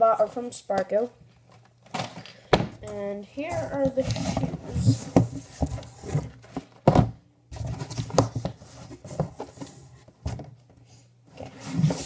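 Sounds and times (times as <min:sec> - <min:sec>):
cardboard rustling: 0:03.4 - 0:10.6, 0:11.3 - 0:12.0.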